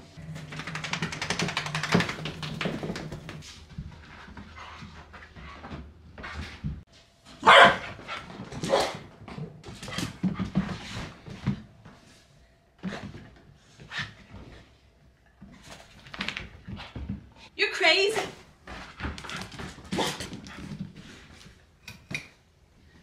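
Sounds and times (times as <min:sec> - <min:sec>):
dog barking sharply: 0:07.4 - 0:07.9.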